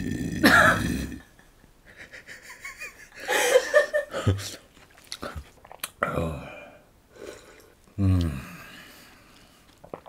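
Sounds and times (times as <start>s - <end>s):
woman laughing: 1.9s - 4.6s.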